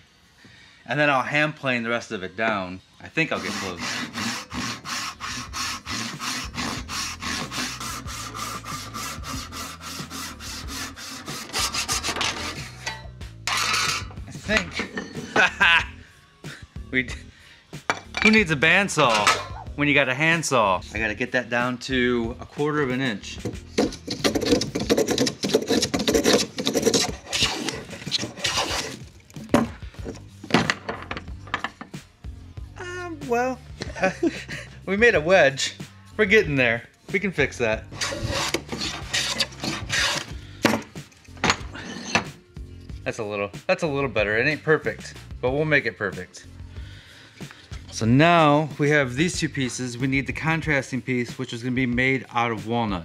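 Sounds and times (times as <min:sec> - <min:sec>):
hand saw rasping through wood: 0:03.3 - 0:12.9, 0:13.5 - 0:14.1, 0:23.6 - 0:29.7, 0:37.8 - 0:40.4.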